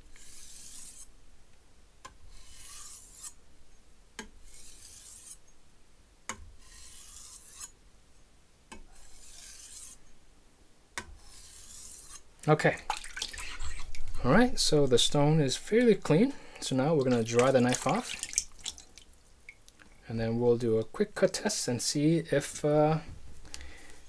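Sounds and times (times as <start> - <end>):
knife rasping on whetstone: 0.1 - 1.1, 2.3 - 3.4, 4.4 - 5.4, 6.6 - 7.8, 8.9 - 10.0, 11.2 - 12.3.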